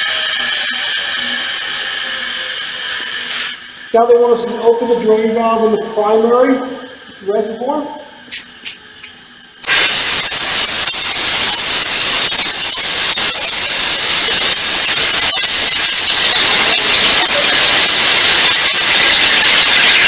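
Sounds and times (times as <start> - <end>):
compressed air hissing from valve: 1.2 - 3.9, 9.6 - 20.0.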